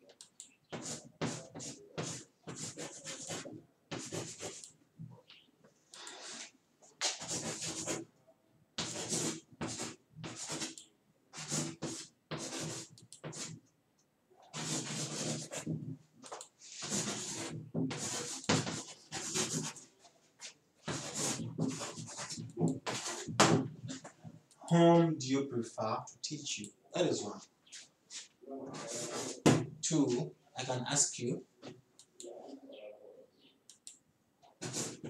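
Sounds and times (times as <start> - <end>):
chalk scratching on blackboard: 0.7 - 4.7, 6.1 - 8.1, 8.8 - 13.6, 14.5 - 15.8, 16.6 - 24.1, 27.7 - 30.2, 34.6 - 35.0.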